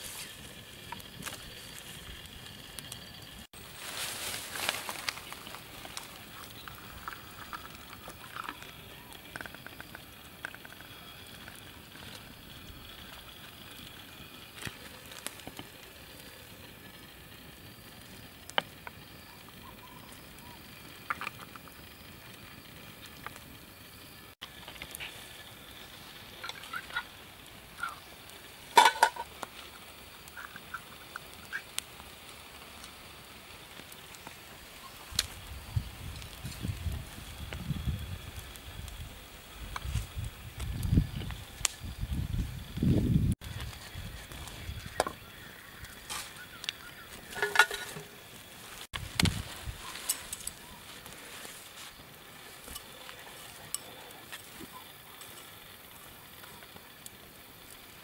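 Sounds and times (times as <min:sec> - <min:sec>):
campfire crackling and popping: 0:00.0 - 0:58.0
tin can clattering: 0:28.7 - 0:29.3, 0:47.2 - 0:48.2
metal canteen clinking: 0:28.7 - 0:29.4, 0:47.2 - 0:48.3.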